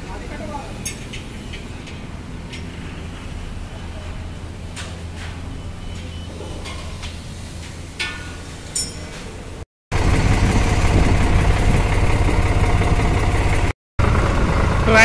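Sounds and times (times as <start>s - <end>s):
tractor diesel engine running: 9.9s - 15.0s.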